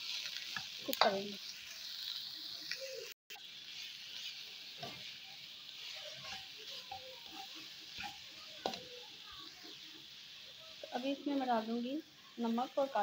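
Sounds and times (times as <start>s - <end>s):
food sizzling in oil: 0.0s - 13.0s
spatula scraping and knocking pan: 4.1s - 8.9s.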